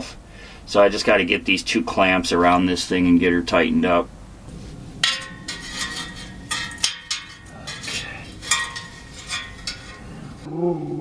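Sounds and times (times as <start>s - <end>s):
metal clamps clinking: 5.0s - 10.1s.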